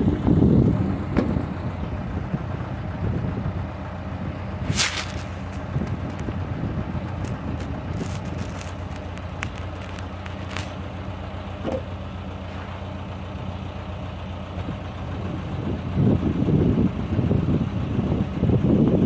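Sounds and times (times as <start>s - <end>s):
diesel engine idling: 0.0s - 19.0s.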